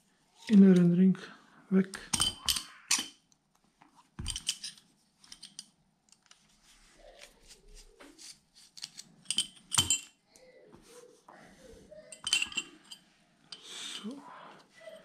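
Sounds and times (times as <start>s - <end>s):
small metal parts clicking: 4.3s - 6.4s.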